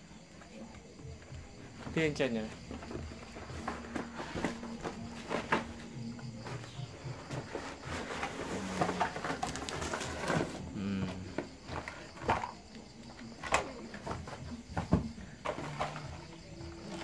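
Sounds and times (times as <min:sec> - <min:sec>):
cardboard box rustling and scraping: 0:01.7 - 0:10.7.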